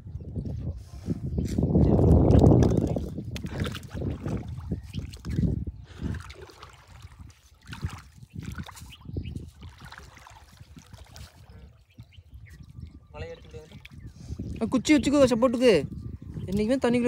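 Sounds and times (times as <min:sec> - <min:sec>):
water sloshing from wading: 0:02.1 - 0:17.0.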